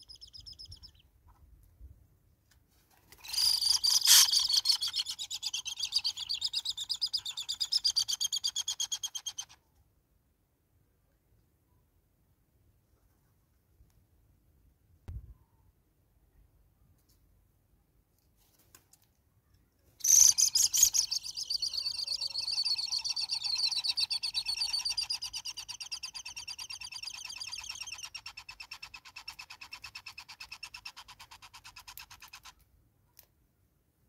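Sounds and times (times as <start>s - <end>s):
hornbill chattering call: 3.6s - 6.4s.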